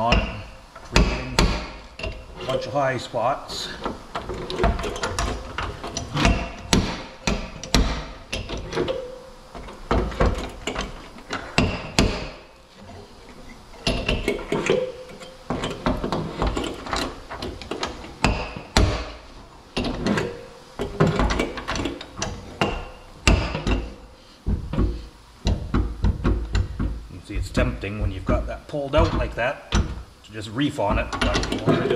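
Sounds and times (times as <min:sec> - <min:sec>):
slide hammer knocking: 0:00.0 - 0:02.2, 0:03.8 - 0:12.4, 0:20.9 - 0:30.0.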